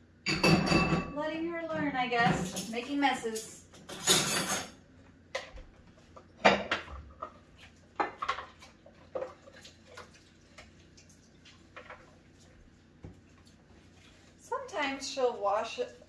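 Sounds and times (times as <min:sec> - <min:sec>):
dishes clinking in soapy water: 0:00.2 - 0:01.2, 0:02.2 - 0:04.8, 0:06.3 - 0:10.7.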